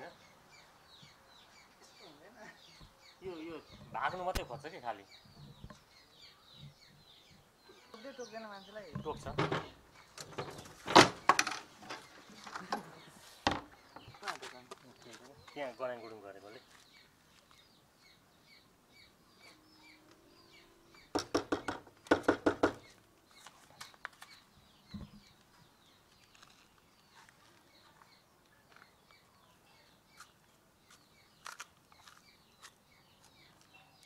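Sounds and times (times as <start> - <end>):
small birds chirping: 0.0 - 34.0
rapid chattering bird calls: 0.1 - 14.6, 18.5 - 25.4.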